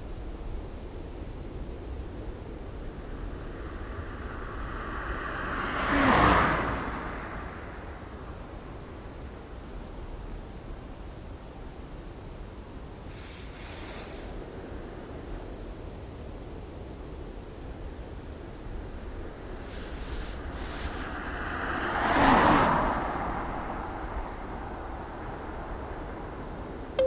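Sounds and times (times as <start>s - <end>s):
background ambience noise: 0.0s - 5.8s, 6.5s - 27.0s
faint short hiss: 13.1s - 14.4s, 19.6s - 21.3s.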